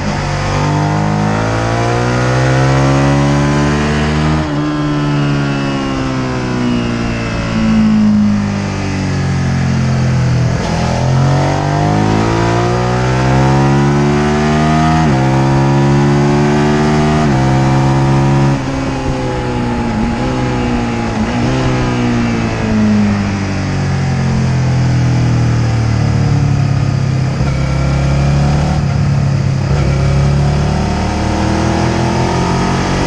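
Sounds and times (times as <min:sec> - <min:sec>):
motorcycle engine revving: 0:00.0 - 0:33.0
wind rush: 0:17.2 - 0:24.4.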